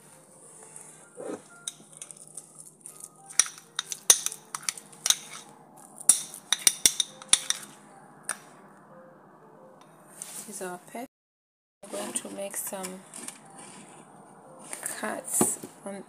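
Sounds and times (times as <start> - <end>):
spoon stirring thick paste: 0.6 - 7.8
spoon clinking against ceramic dish: 1.6 - 5.5, 6.1 - 8.4.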